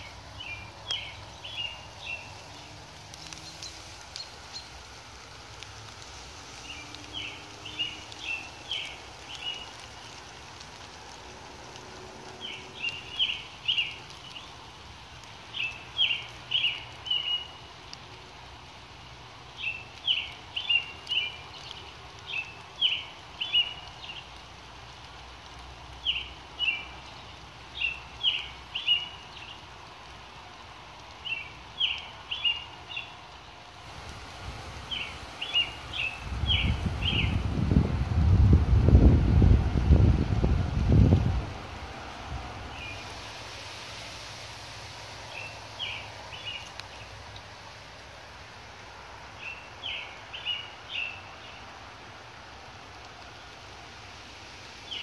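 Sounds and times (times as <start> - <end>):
songbird singing: 0.0 - 10.2, 11.7 - 17.9, 19.4 - 24.4, 25.9 - 33.6, 34.6 - 38.0, 42.6 - 43.2, 44.6 - 48.1, 49.2 - 51.8, 54.8 - 55.0
light rain falling on leaves: 0.0 - 55.0.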